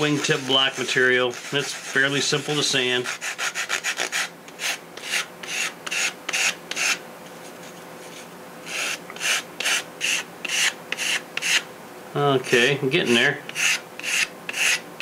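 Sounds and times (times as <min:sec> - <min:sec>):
sandpaper rubbing on wood: 0:00.1 - 0:07.0, 0:12.4 - 0:14.8.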